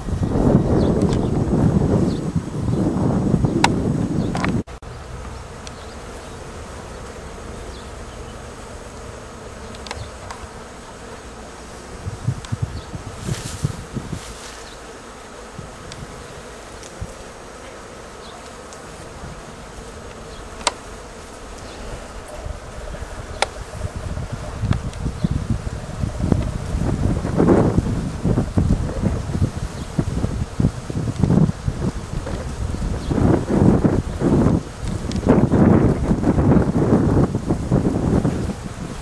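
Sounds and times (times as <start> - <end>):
bees buzzing: 0.0 - 39.0
wind gusts on microphone: 0.0 - 39.0
rustling: 9.3 - 25.2.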